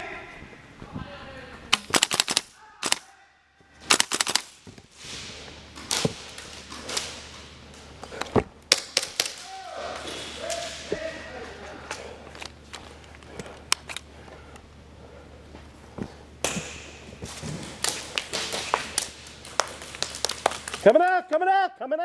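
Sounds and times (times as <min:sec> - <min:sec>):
airsoft rifle firing: 0:01.7 - 0:03.1, 0:03.8 - 0:04.6.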